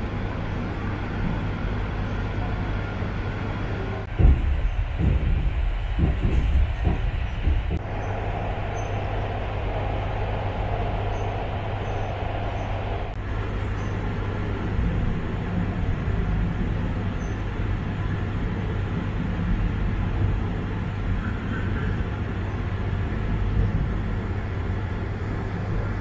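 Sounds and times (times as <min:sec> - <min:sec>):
knocks: 0:04.1 - 0:07.8.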